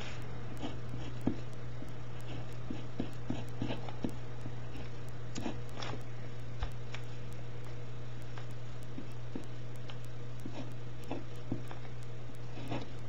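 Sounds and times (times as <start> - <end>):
pen scratching on paper: 0.0 - 1.5, 2.1 - 5.7, 10.4 - 11.7, 12.4 - 13.0
steady low hum: 0.0 - 13.0.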